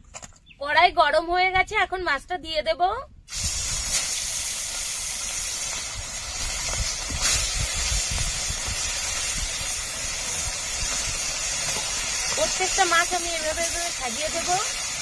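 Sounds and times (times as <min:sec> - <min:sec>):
fish sizzling in hot oil: 0:03.3 - 0:15.0.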